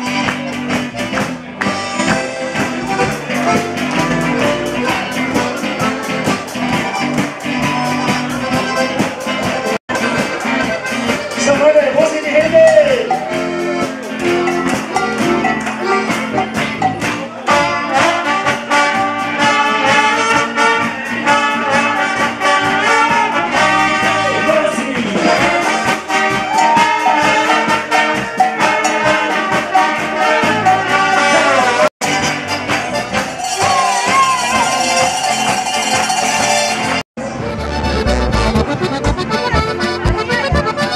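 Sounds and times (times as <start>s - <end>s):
crowd clapping along: 0.0s - 5.4s, 14.2s - 17.6s, 32.1s - 37.0s
brass band folk music: 0.0s - 40.9s.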